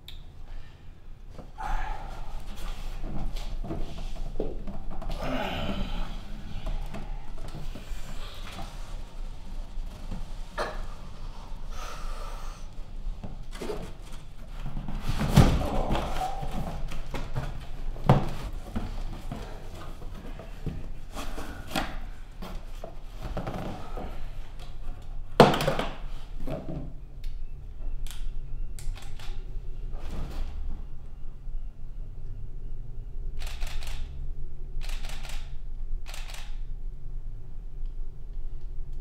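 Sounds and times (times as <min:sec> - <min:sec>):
dull thunks of box: 0:14.8 - 0:18.9.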